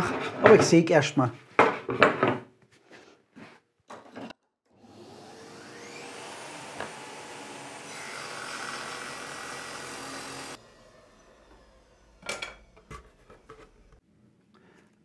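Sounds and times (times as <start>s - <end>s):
table saw whining: 4.7s - 14.0s.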